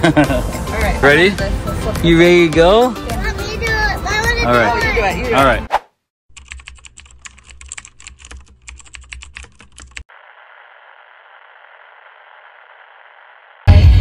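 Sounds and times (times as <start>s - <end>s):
rapid clicking and tapping: 6.3s - 10.1s.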